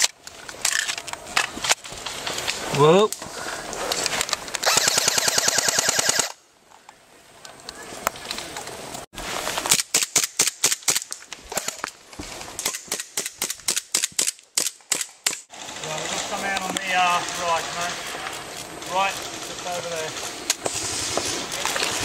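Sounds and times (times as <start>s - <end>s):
airsoft pistol rapid single shots: 4.6s - 6.3s
airsoft gun full-auto burst: 4.6s - 6.4s.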